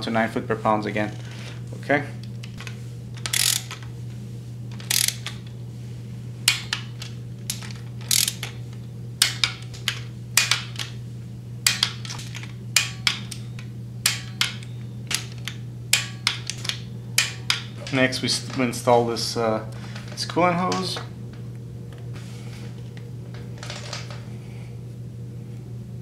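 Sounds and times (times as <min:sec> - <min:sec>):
torque wrench ratcheting: 0:02.6 - 0:03.9, 0:04.7 - 0:05.5, 0:06.5 - 0:08.6.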